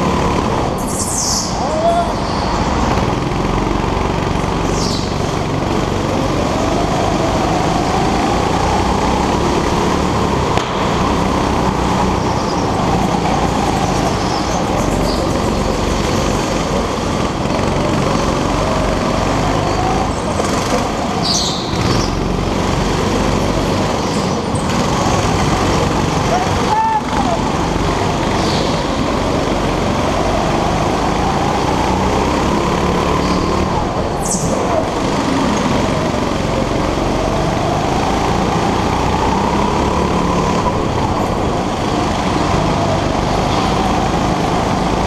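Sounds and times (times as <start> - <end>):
go-kart engine revving: 0.0 - 45.0.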